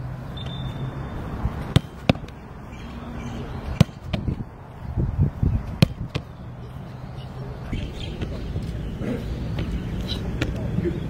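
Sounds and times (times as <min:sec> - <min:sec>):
football struck and caught thuds: 0:01.7 - 0:02.4, 0:03.7 - 0:04.4, 0:05.6 - 0:06.3.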